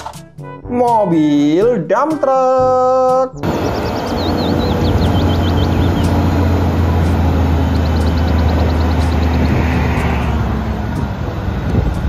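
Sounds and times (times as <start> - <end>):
bird chirping: 3.4 - 10.0
diesel truck engine running: 3.4 - 12.0.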